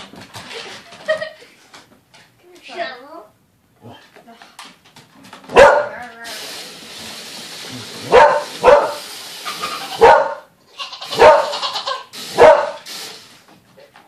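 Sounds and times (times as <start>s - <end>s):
dog barking: 5.5s - 6.0s, 8.1s - 9.0s, 10.0s - 10.5s, 11.1s - 11.6s, 12.4s - 12.8s.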